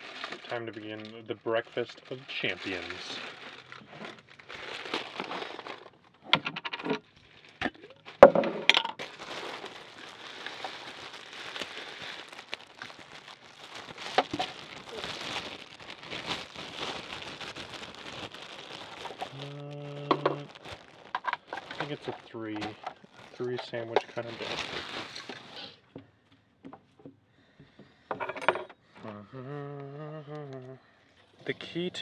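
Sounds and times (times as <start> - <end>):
plastic bag crinkling: 0.0 - 8.3, 8.9 - 25.8.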